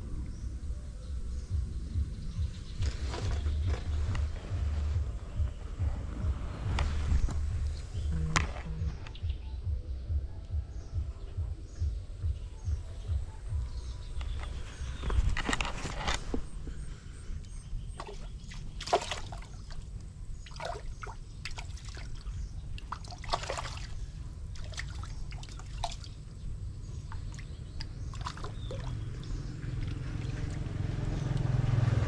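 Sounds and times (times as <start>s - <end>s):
low rumble: 0.0s - 18.4s
water splashing and trickling: 2.7s - 5.7s, 17.8s - 32.0s.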